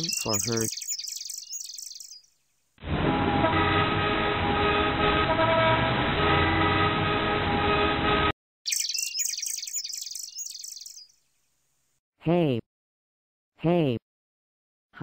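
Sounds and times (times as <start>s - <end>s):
car horns honking: 2.9s - 8.3s.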